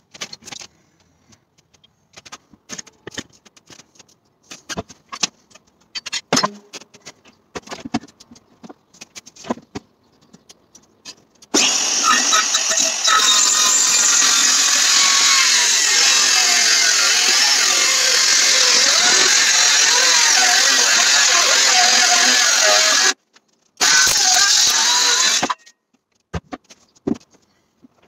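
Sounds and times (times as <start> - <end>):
circular saw cutting wood: 11.6 - 23.2, 23.8 - 25.6.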